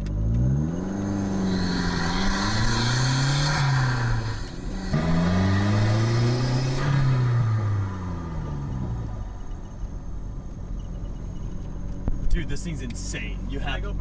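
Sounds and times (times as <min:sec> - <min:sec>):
car engine accelerating hard: 0:00.0 - 0:14.0
turbo whoosh: 0:00.7 - 0:08.7.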